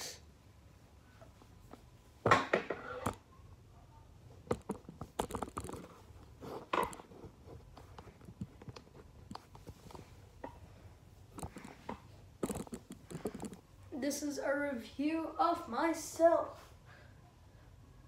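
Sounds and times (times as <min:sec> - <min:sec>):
phone handling clicks and rustles: 0:04.5 - 0:06.0, 0:11.3 - 0:13.6.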